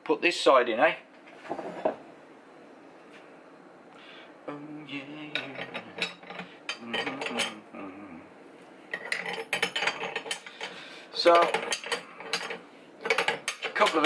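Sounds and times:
metal spanners clinking: 5.4s - 7.6s, 8.9s - 14.0s
low voice muttering: 6.8s - 8.3s.

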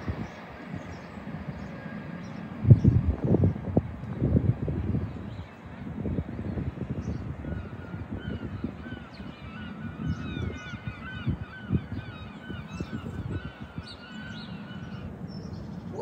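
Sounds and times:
low gusty rumble: 0.0s - 16.0s
birds honking: 7.3s - 16.0s.

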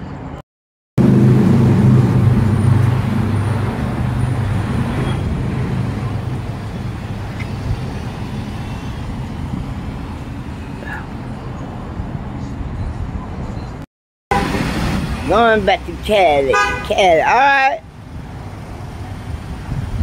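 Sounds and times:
vehicle driving away: 1.0s - 12.2s.

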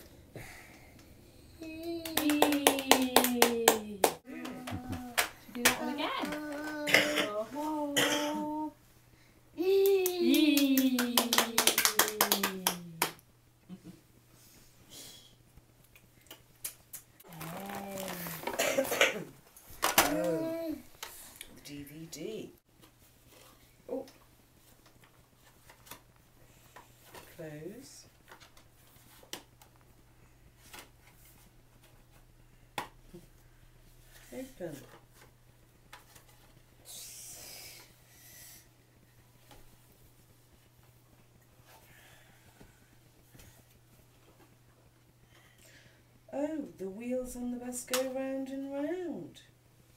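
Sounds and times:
hands clapping: 1.8s - 6.8s, 9.7s - 13.2s
book rustling in hands: 17.2s - 18.6s.

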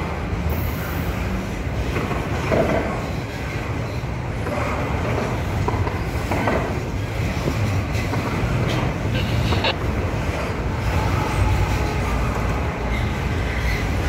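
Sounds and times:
freight train rumbling on rails: 0.0s - 14.0s.

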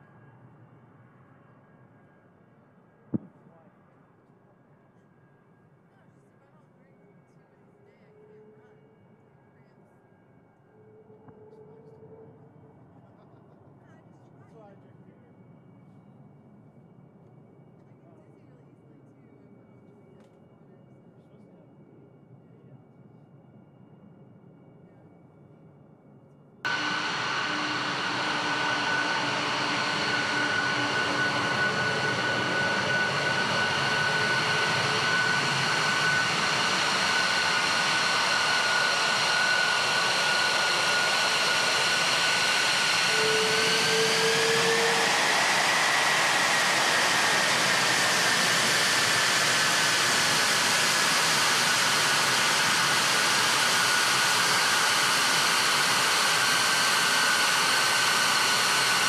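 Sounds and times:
jet engine rush with turbine whine: 26.7s - 59.0s.

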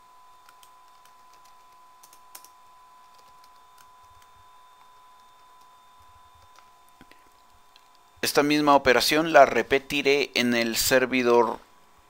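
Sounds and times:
faint steady tone: 0.0s - 12.0s
keyboard keys clicking: 0.4s - 4.3s.

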